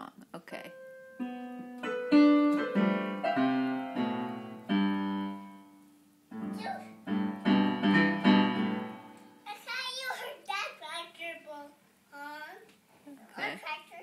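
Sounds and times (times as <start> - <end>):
upright piano notes and chords: 0.7 - 9.4.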